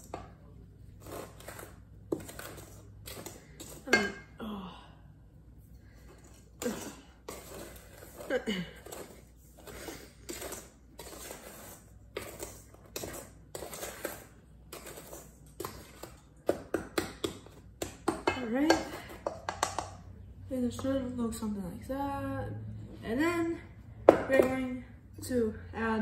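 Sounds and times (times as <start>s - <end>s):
spatula scraping metal bowl: 0.9s - 4.3s, 6.0s - 16.2s.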